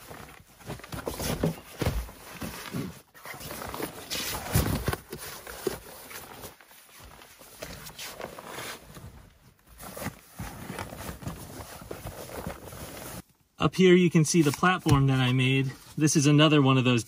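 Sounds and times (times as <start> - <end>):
fabric rustling: 0.0 - 13.2.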